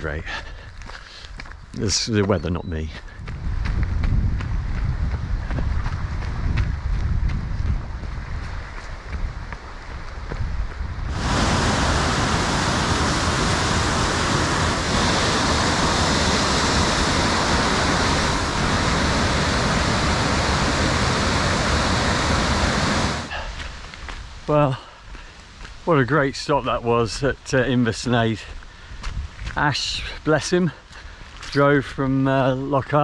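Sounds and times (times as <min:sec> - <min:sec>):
waterfall rushing: 0:11.1 - 0:23.6.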